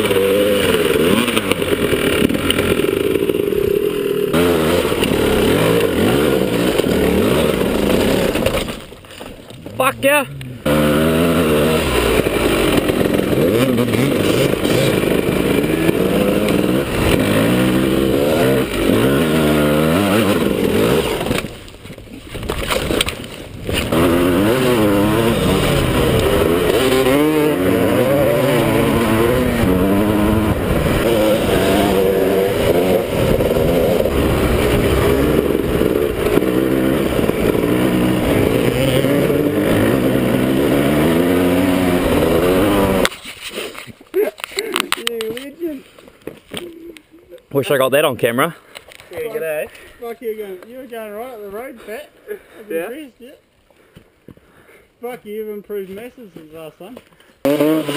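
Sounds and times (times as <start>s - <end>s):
dirt bike engine revving: 0.0s - 8.8s, 9.6s - 21.7s, 22.4s - 43.2s, 57.4s - 57.9s.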